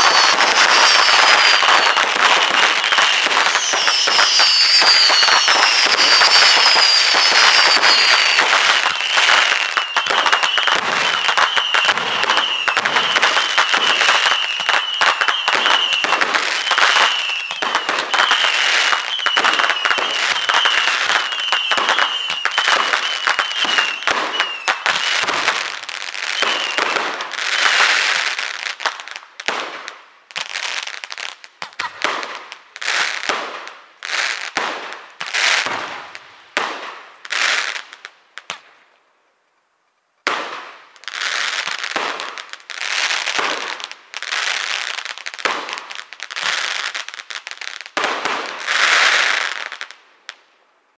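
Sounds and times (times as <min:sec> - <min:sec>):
firework whistle: 0:00.0 - 0:28.4
fireworks exploding and crackling: 0:00.0 - 0:39.1, 0:40.2 - 0:51.0.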